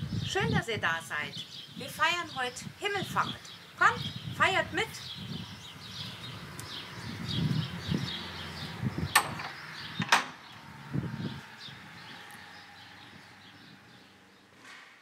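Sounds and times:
birds chirping: 0.0s - 14.6s
heavy wooden door opening: 9.0s - 10.5s
door latch clicks: 9.1s - 10.4s
footsteps on pavement: 11.4s - 13.9s.

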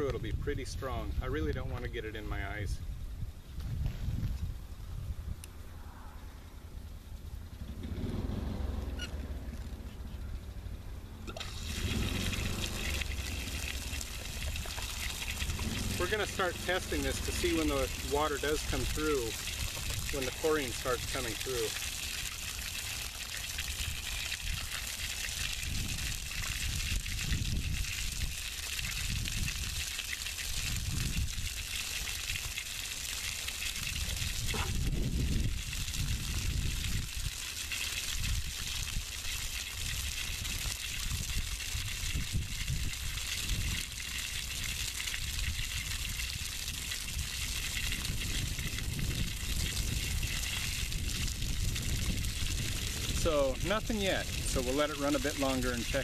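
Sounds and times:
wind buffeting microphone: 0.0s - 5.4s, 23.6s - 29.8s, 30.6s - 31.7s, 33.7s - 37.4s, 38.1s - 39.2s, 39.8s - 43.9s, 45.2s - 55.0s
hose spraying water: 11.3s - 56.0s.

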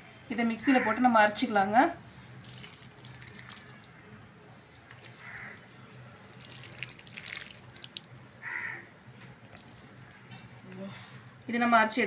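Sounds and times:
wet squelches of raw meat: 2.1s - 8.3s
crow cawing: 5.1s - 5.6s, 8.4s - 8.9s.

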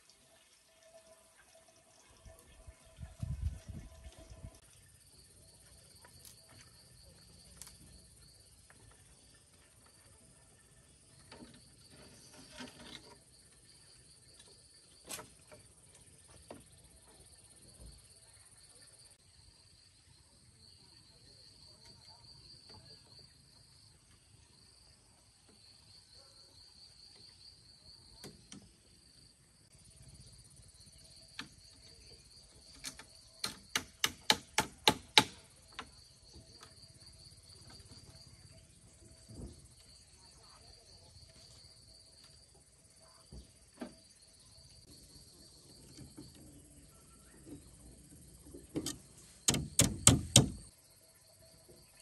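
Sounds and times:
insects chirring: 0.0s - 52.0s
knocks on bamboo frame: 32.8s - 35.9s, 48.8s - 50.7s.

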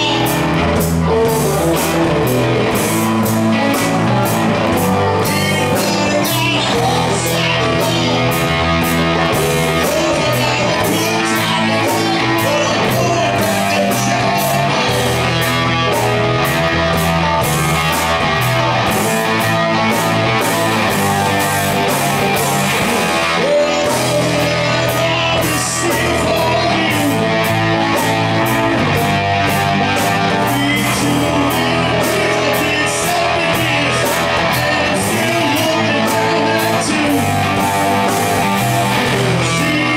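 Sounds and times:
drum kit beat: 0.0s - 39.9s
electric and acoustic guitars: 0.0s - 39.9s
man singing lead vocal: 0.0s - 39.9s.

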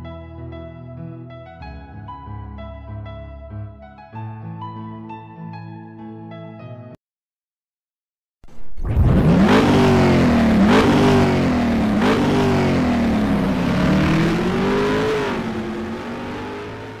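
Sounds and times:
car engine revving: 8.5s - 17.0s.

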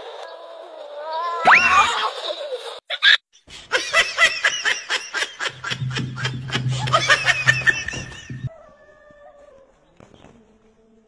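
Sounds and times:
person laughing: 2.1s - 8.5s.

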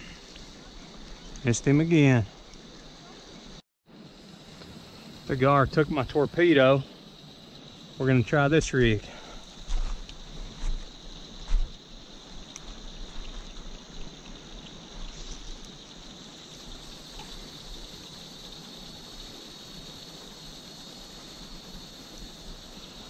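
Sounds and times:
crickets chirping: 0.0s - 23.0s
faint ticks: 0.1s - 1.5s, 9.4s - 20.6s.

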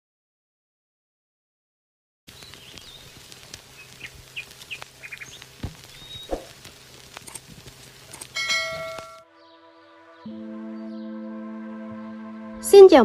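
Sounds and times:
outdoor background noise: 2.3s - 9.2s
small birds chirping: 2.3s - 9.6s
bright ringing chime: 8.4s - 9.2s.

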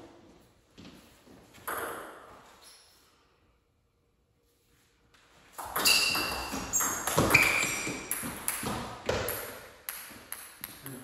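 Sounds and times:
ping-pong ball hitting bats and table: 1.6s - 2.4s, 5.5s - 11.0s.

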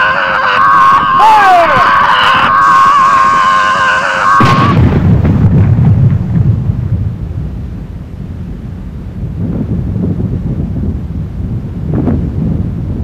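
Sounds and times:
voices yelling: 0.0s - 4.7s
cannon shot: 4.3s - 7.7s.

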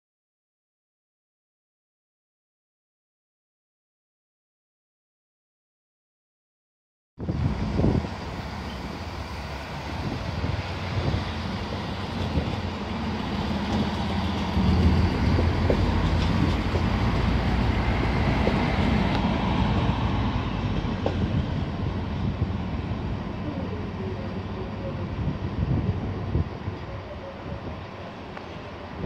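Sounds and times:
diesel engines rumbling: 7.3s - 29.0s
train wheels on rails: 7.4s - 27.0s.

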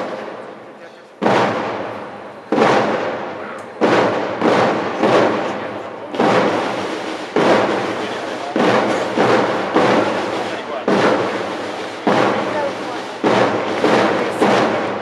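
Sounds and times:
loud echoing bangs: 0.0s - 15.0s.

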